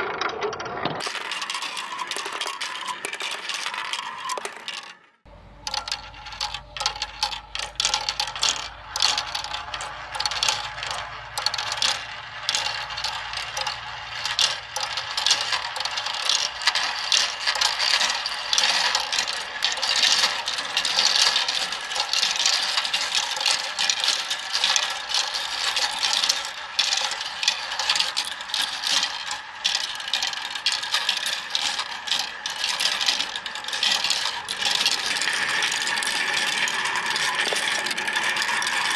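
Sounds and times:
plastic balls clattering down track: 0.0s - 38.9s.

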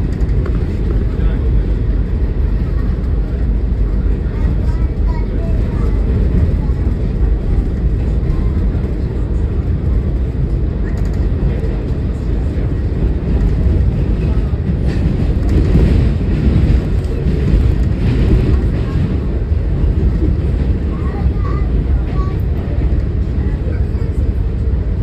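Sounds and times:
subway train rumbling on track: 0.0s - 25.0s.

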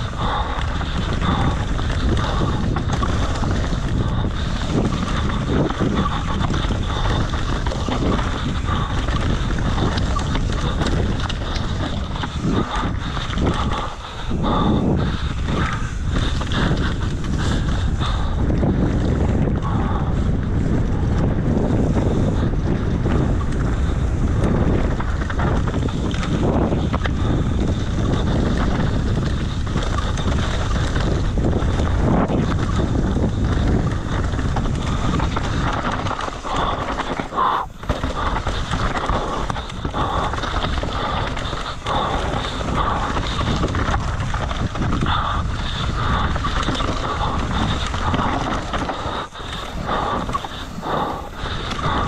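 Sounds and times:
rough trail noise: 0.0s - 52.0s
wind buffeting microphone: 0.0s - 52.0s.

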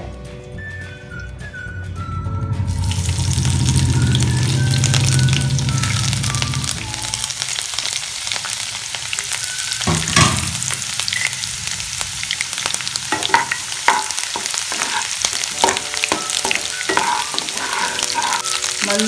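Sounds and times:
food sizzling in hot oil: 2.7s - 19.0s
knocks against pan: 9.8s - 10.7s
spatula stirring and scraping: 13.1s - 19.0s.

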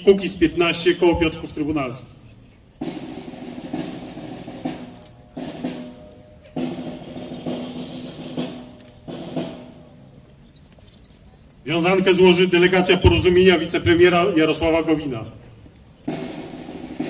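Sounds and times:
snare drum roll: 2.8s - 6.0s, 6.6s - 9.8s, 12.7s - 15.1s, 16.1s - 17.0s.

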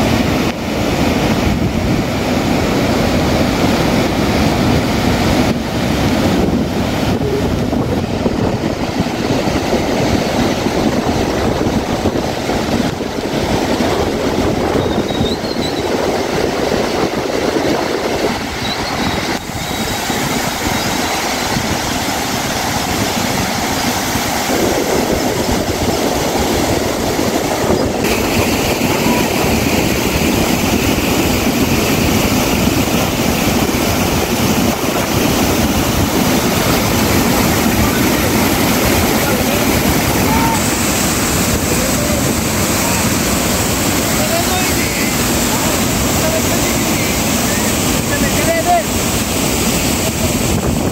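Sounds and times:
floodwater rushing over weir: 0.0s - 50.9s.

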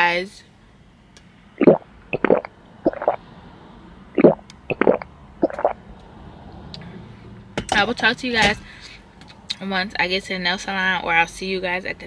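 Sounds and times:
person gulping through straw: 1.6s - 3.2s, 4.2s - 5.8s.

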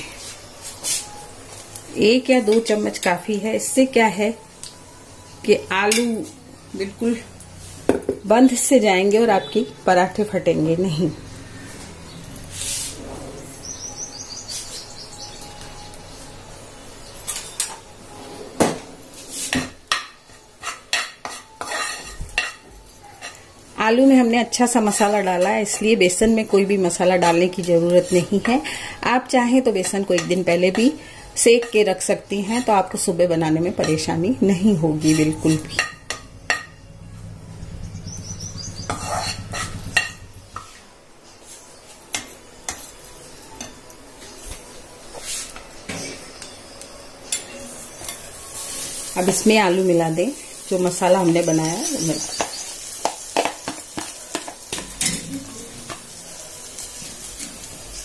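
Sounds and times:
flour roasting in oil: 5.4s - 18.4s, 19.1s - 36.7s, 47.8s - 58.0s
metal spatula scraping a pan: 12.5s - 13.6s, 17.3s - 23.5s, 24.6s - 28.6s, 34.9s - 36.7s, 38.8s - 40.9s
low hum: 35.6s - 40.5s.

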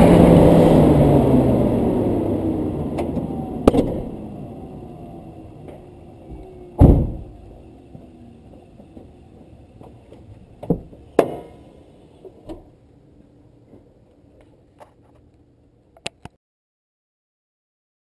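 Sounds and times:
car engine winding down: 0.0s - 10.6s
loud thump: 3.6s - 4.1s, 6.8s - 7.4s
car hood clunks: 6.8s - 7.4s.

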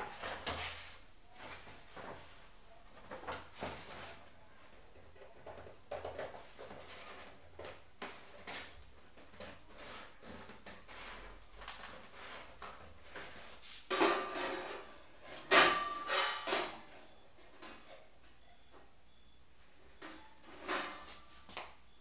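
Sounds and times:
sheet metal clanks and knocks: 13.9s - 16.9s.

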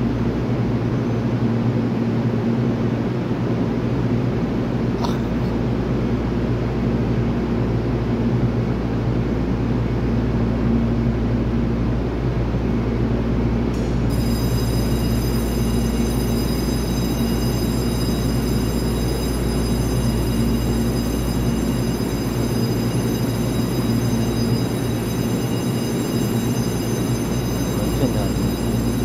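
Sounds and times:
train equipment low hum: 0.0s - 29.0s
faint high whine: 13.8s - 29.0s.

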